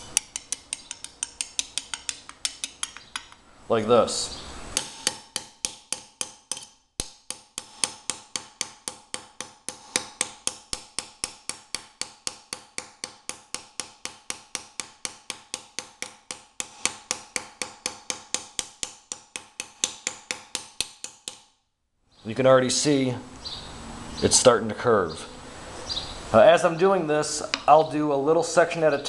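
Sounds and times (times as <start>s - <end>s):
hammer striking steel plate: 0.0s - 3.4s, 4.8s - 21.5s.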